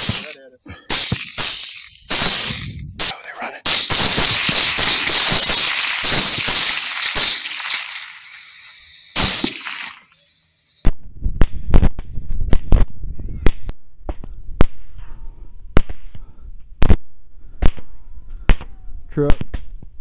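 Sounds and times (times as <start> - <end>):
rifle shots: 0.0 - 3.1, 3.7 - 10.1.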